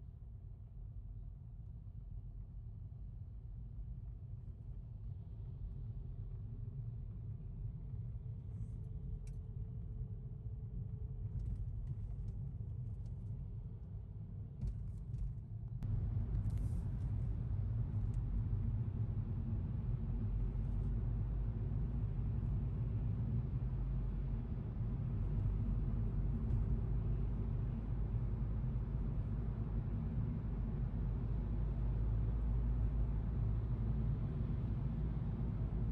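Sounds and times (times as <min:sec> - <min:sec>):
car road and engine rumble: 0:08.5 - 0:35.9.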